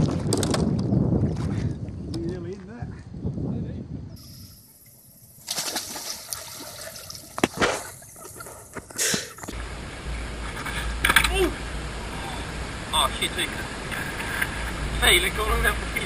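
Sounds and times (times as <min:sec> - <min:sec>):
water splashing and sloshing: 0:00.0 - 0:02.7, 0:04.6 - 0:12.8, 0:13.4 - 0:16.0
wind buffeting microphone: 0:00.0 - 0:04.6.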